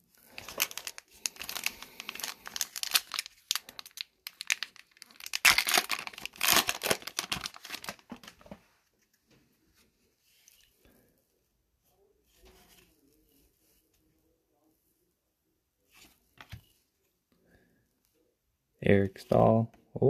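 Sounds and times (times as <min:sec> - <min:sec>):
plastic foil wrapper tearing: 0:00.2 - 0:08.0.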